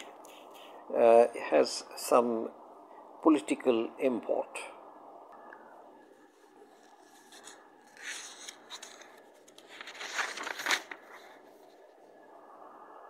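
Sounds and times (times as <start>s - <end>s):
paper rustling: 0.0s - 0.8s, 6.1s - 12.1s
faint steady hum: 0.0s - 13.0s.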